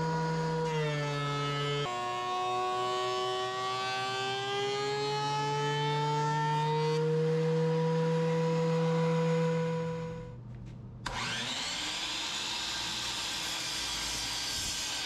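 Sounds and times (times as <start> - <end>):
thickness planer cutting wood: 0.0 - 10.0, 11.1 - 15.0.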